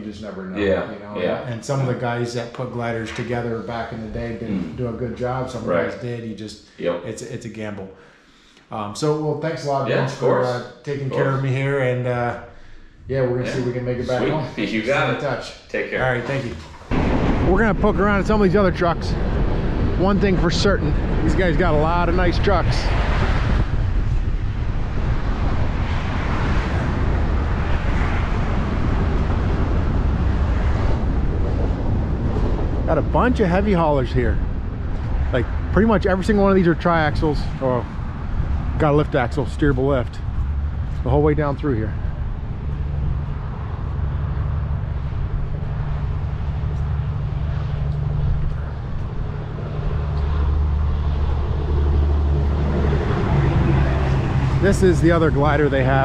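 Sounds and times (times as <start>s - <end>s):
wind buffeting microphone: 13.0s - 56.0s.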